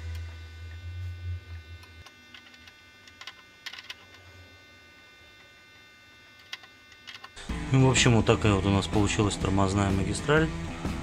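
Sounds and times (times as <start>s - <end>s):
low hum: 0.0s - 9.6s.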